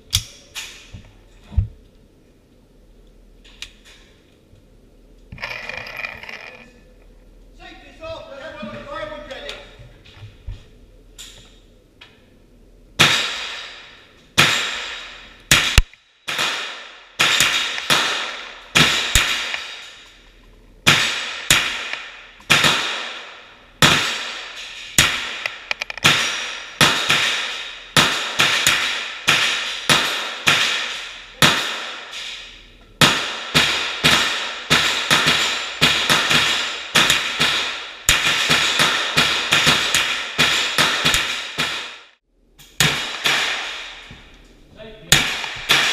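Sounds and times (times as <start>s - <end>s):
rifle shots echoing in tunnel: 13.0s - 20.2s, 20.8s - 42.2s, 42.8s - 44.1s, 45.1s - 45.9s.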